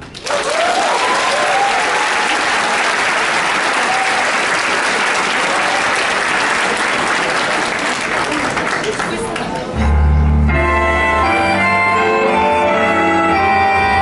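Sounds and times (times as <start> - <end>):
audience applause: 0.0 - 9.7.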